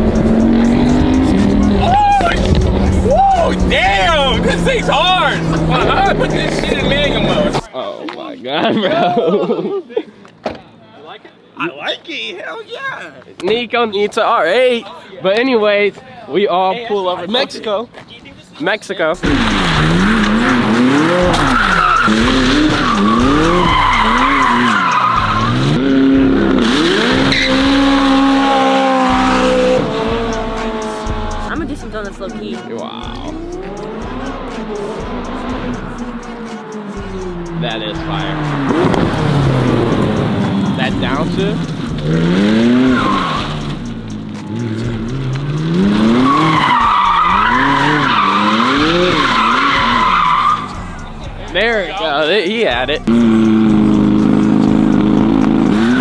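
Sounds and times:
car engine revving: 0:00.0 - 0:07.7, 0:19.2 - 0:56.0
tyres squealing: 0:19.2 - 0:31.4, 0:33.4 - 0:56.0.

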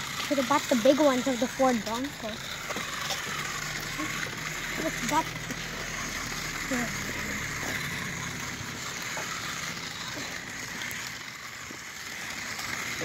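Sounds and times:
toy car motor whirring: 0:00.0 - 0:13.0.

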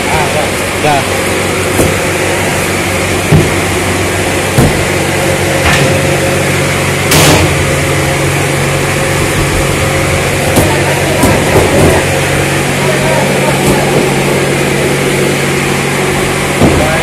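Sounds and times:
steady motor hum: 0:00.0 - 0:17.0
cardboard cartons knocking: 0:01.7 - 0:02.6, 0:03.2 - 0:05.2, 0:10.4 - 0:12.2.

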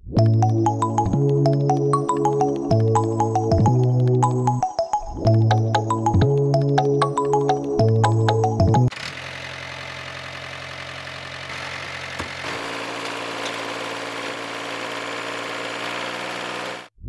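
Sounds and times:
small engine running: 0:08.9 - 0:16.9.

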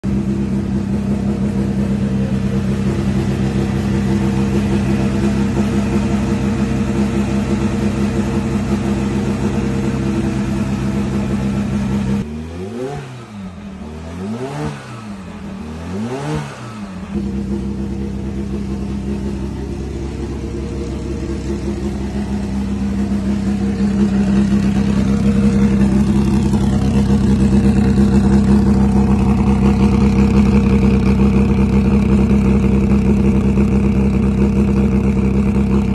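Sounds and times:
race car engine idling: 0:00.0 - 0:12.3, 0:16.8 - 0:35.9.

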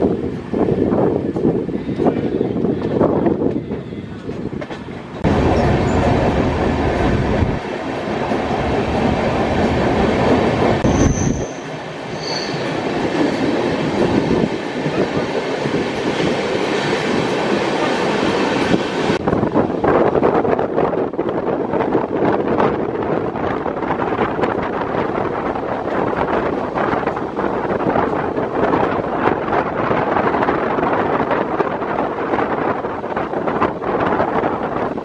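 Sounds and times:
train wheels rumbling on track: 0:00.0 - 0:35.0
rushing air: 0:04.3 - 0:35.0
brief high squeaks: 0:10.8 - 0:12.7.

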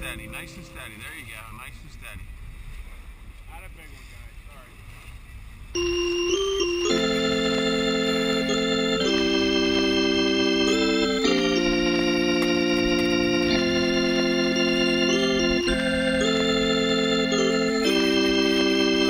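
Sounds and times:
higher melody line: 0:05.8 - 0:19.0
slow organ chords: 0:05.8 - 0:19.0.

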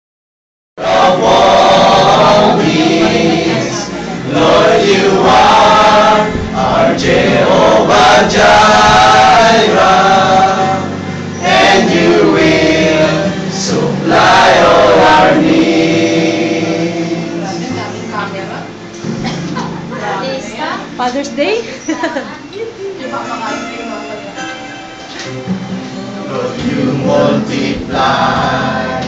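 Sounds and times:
group of men singing: 0:00.8 - 0:18.2, 0:25.3 - 0:29.0.

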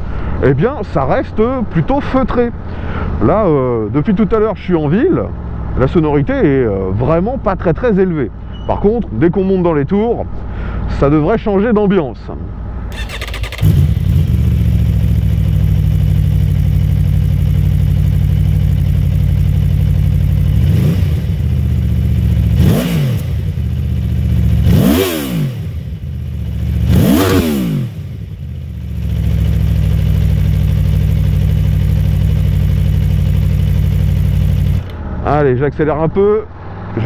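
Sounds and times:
motorcycle engine revving: 0:12.9 - 0:35.2.

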